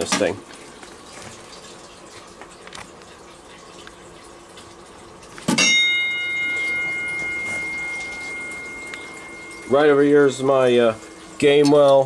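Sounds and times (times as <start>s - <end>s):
fire alarm chime ringing: 5.6s - 11.3s.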